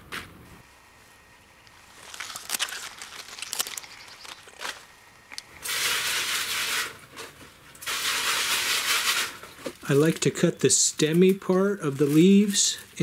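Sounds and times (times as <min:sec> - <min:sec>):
leaves rustling: 0:01.0 - 0:10.3.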